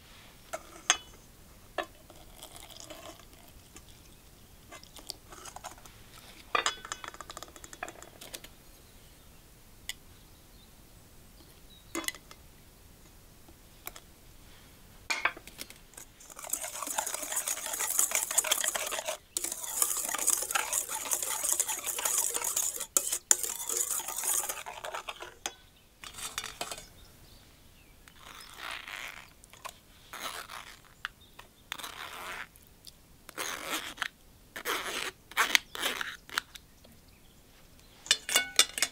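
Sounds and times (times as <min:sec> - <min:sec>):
scraping through a metal sieve: 0:00.0 - 0:01.2, 0:15.9 - 0:26.9
whisk clinking against bowl: 0:16.0 - 0:26.9
wire whisk beating batter in bowl: 0:16.0 - 0:26.9.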